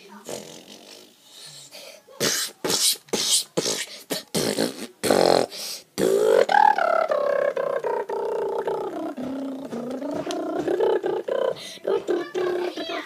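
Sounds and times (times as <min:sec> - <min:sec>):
person making hissing spitting sounds: 0:00.2 - 0:06.5.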